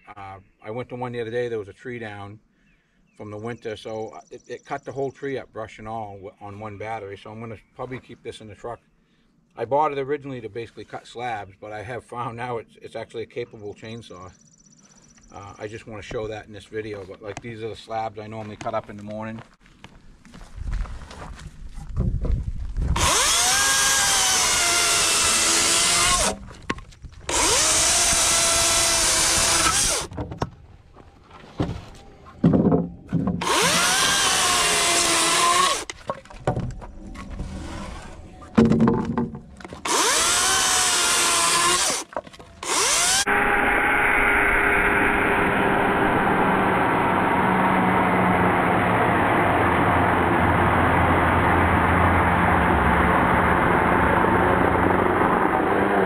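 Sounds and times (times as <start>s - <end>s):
battery chainsaw cutting wood: 23.0s - 26.5s, 27.3s - 30.1s, 33.4s - 36.0s, 39.7s - 56.0s
knocks: 38.6s - 39.5s.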